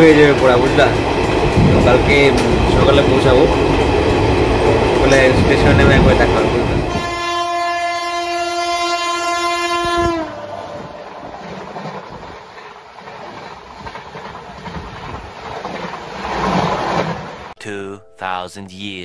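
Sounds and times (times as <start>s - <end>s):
train passing close by: 0.0s - 17.5s
train horn: 6.7s - 11.3s.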